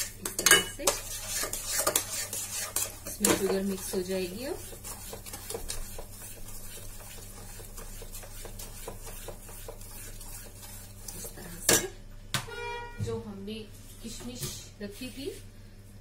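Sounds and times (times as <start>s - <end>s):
spoon scraping pan: 0.0s - 11.9s.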